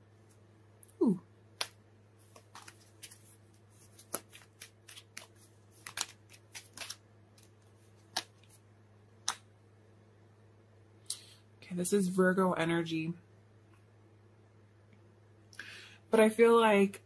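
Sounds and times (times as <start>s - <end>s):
faint steady hum: 0.0s - 17.0s
cards shuffling and snapping: 1.6s - 8.6s, 9.2s - 9.4s.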